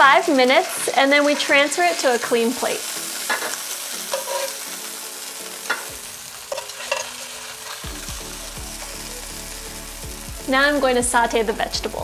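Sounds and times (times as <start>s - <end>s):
chicken sizzling in hot oil: 0.0s - 12.0s.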